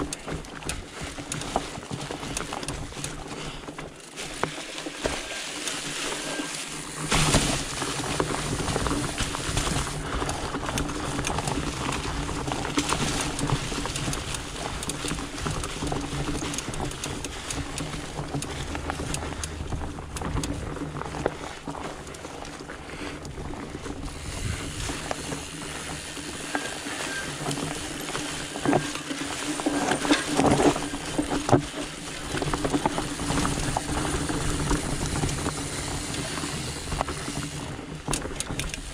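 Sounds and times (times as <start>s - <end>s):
bike rattling over ground: 0.0s - 38.9s
bike tyre hum: 0.0s - 38.9s.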